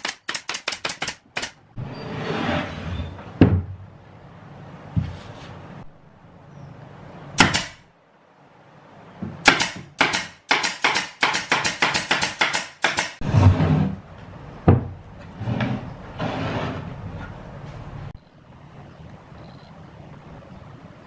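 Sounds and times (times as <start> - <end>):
nail gun firing: 0.0 - 1.6, 7.4 - 7.8, 9.4 - 13.2
plywood panels knocking: 14.6 - 15.0.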